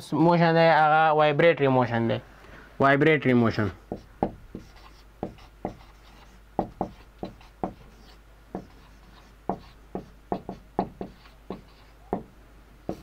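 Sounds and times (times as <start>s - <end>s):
marker writing on whiteboard: 3.9s - 12.3s.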